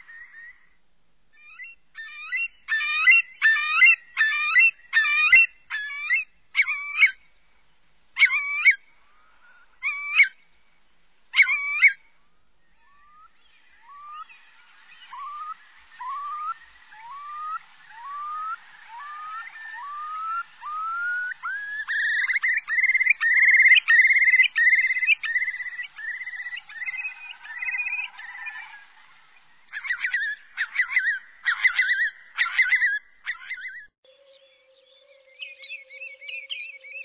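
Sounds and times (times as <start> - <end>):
rapid bird calls: 1.4 - 7.2, 8.2 - 10.4, 11.3 - 37.0
curlew bubbling song: 1.4 - 7.3, 8.2 - 10.4, 11.3 - 37.0.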